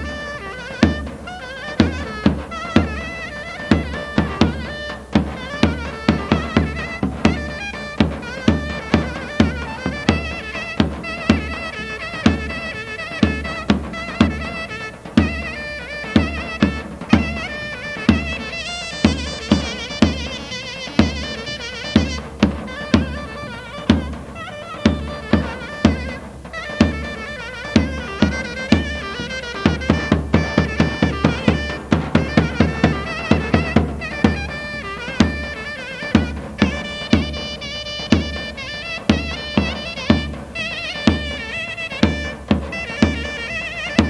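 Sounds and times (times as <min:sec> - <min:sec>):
heavy drum beats: 0:00.0 - 0:44.0
shrill reed pipe melody: 0:00.0 - 0:44.0
bass drum beat: 0:21.0 - 0:37.4.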